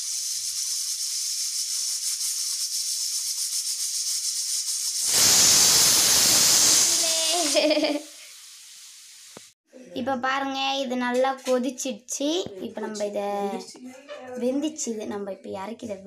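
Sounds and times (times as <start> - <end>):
pot boiling with hissing steam: 0.0 - 9.6.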